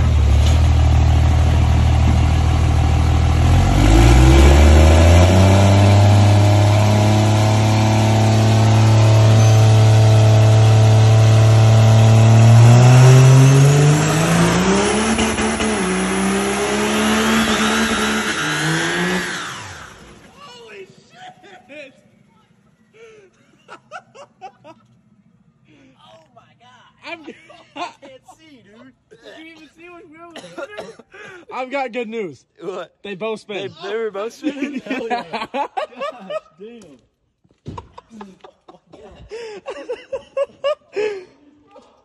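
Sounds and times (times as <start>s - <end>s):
truck engine revving: 0.0s - 20.3s
tires spinning: 0.0s - 21.0s.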